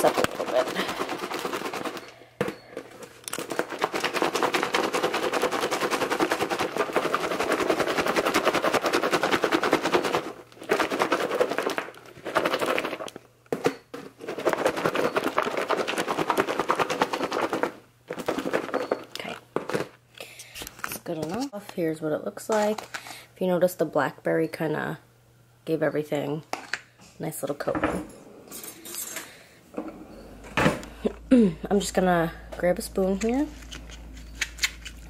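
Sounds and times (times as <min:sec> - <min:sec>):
food rattling in plastic container: 0:00.0 - 0:20.0.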